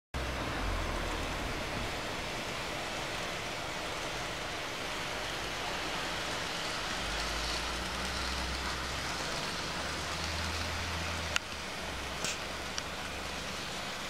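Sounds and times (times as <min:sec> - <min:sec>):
low hum: 0:00.2 - 0:06.1
model train wheels on rail: 0:00.2 - 0:14.0.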